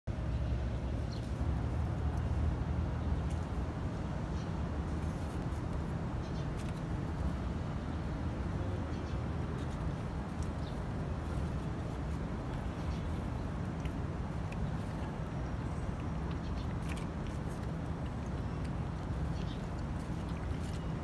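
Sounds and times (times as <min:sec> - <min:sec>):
low engine-like hum: 0:00.1 - 0:21.0.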